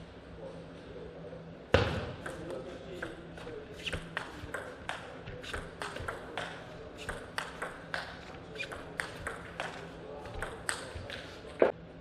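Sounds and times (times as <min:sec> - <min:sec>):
table tennis ball clicks: 0:04.0 - 0:11.2.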